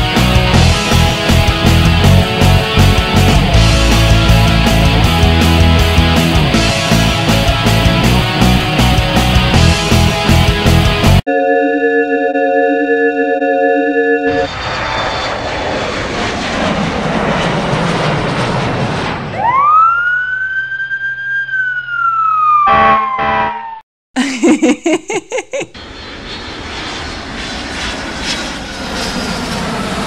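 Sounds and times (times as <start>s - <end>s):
siren wail: 12.8s - 15.7s, 19.1s - 23.8s
jet engines rushing: 14.3s - 20.0s, 25.7s - 30.0s
horn blasts: 22.6s - 23.8s
tooting pulses: 22.6s - 23.8s.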